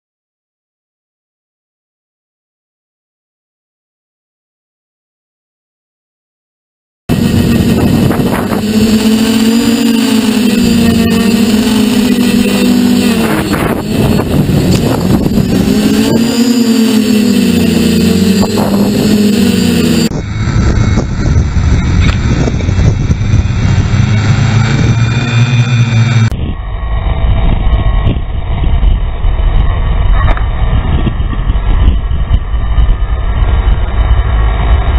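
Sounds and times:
drone propellers whining: 7.1 - 34.9
wind rumble on microphone: 7.1 - 34.9.

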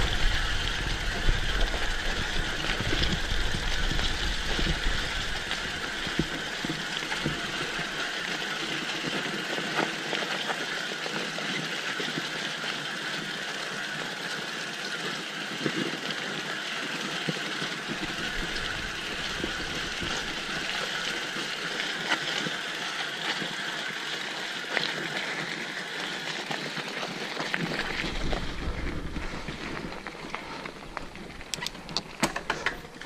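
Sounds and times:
low rumble: 0.0 - 6.6
bike ticking: 0.0 - 33.0
bike tyres rushing on dirt: 0.0 - 33.0.

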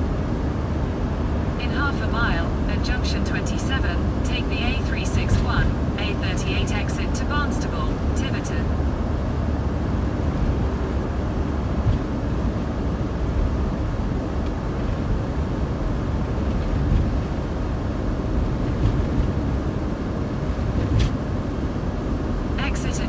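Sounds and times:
vehicle engine and road rumble: 0.0 - 23.0.

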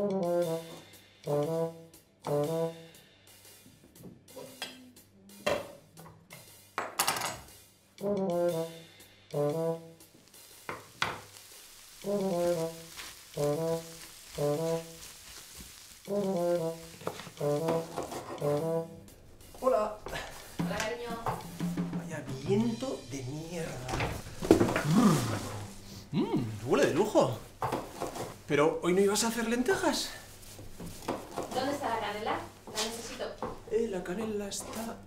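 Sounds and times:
brass music with trombone: 0.0 - 3.6, 7.9 - 10.6, 12.0 - 27.6
faint frying hiss: 8.8 - 35.0
vegetables sizzling in frying pan: 10.0 - 18.6, 19.4 - 21.8, 23.7 - 28.5, 29.3 - 33.7.

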